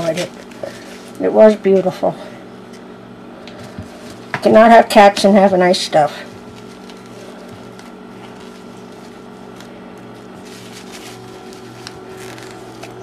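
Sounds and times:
crinkling paper toy: 0.0s - 1.8s, 6.3s - 13.0s
intermittent low hum: 0.0s - 13.0s.

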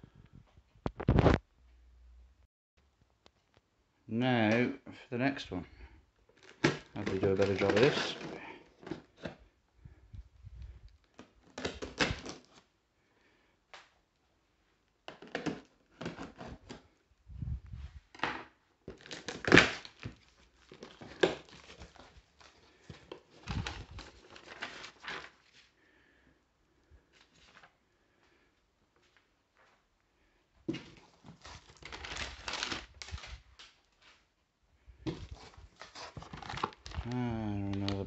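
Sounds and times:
tape crinkling: 6.3s - 9.3s, 18.9s - 25.6s, 30.7s - 34.2s, 35.1s - 38.0s.

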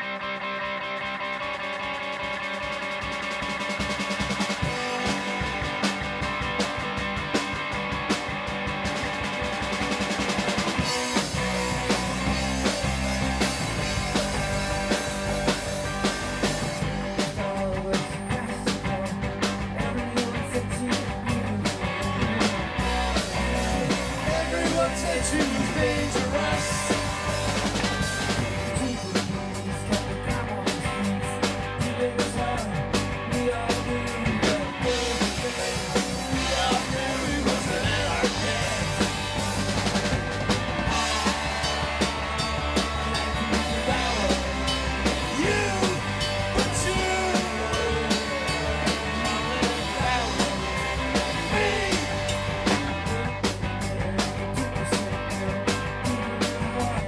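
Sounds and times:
electric bass: 0.0s - 57.0s
electric guitars: 0.0s - 57.0s
drum beat: 2.9s - 17.7s, 22.3s - 29.7s, 34.2s - 54.2s.

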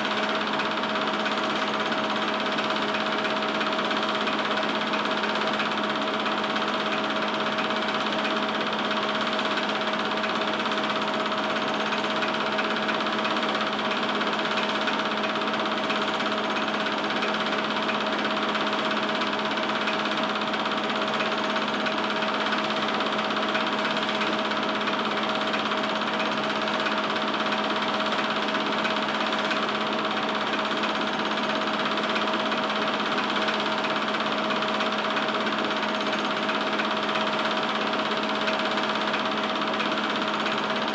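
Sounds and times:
film projector whirring and rattling: 0.0s - 40.9s.

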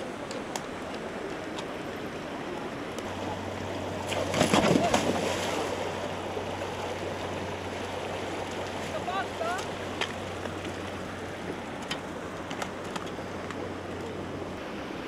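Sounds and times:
rushing stream water: 0.0s - 15.0s
loud splash: 4.0s - 6.0s.

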